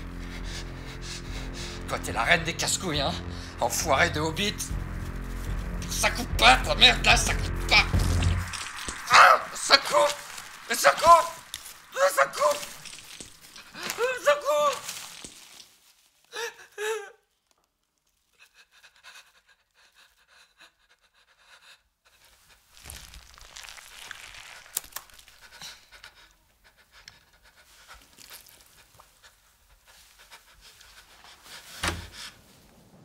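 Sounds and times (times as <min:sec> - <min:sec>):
man panting heavily: 0:00.0 - 0:01.9, 0:18.4 - 0:22.6, 0:25.4 - 0:32.4
sharp rush of noise: 0:00.6 - 0:13.6
man moaning: 0:13.8 - 0:14.8.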